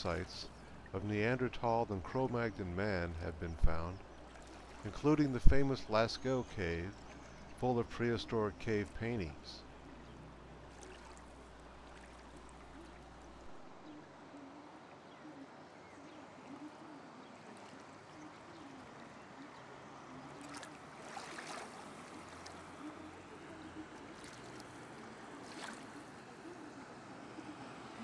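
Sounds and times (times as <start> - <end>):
river water rushing along canoe: 0.0 - 28.0
sharp water splashes: 4.2 - 4.9, 10.7 - 13.2, 20.4 - 22.8, 24.1 - 26.1.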